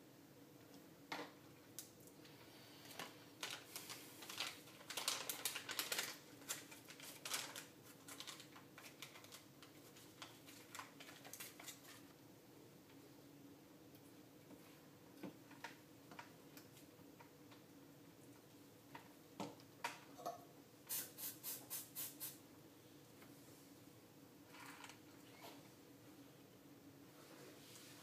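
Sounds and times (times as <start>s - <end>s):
plastic bag crinkling: 2.9s - 12.0s.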